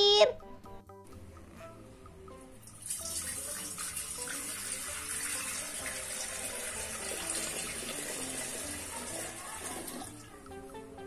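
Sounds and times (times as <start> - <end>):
water pouring into glass bowl: 2.7 - 10.2.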